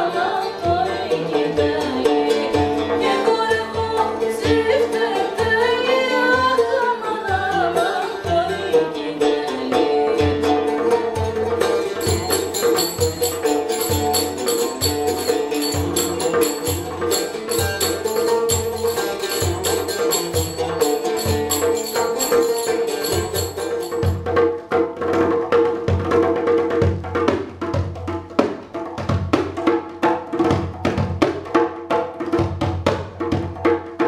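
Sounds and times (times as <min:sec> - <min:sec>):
jingle frame drum beat: 0:11.9 - 0:24.6.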